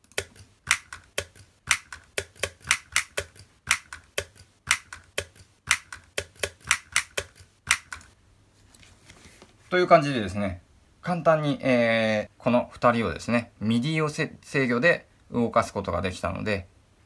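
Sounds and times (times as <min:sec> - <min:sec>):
stick striking small drum: 0:00.0 - 0:08.1
toy hands snapping together: 0:00.2 - 0:08.1.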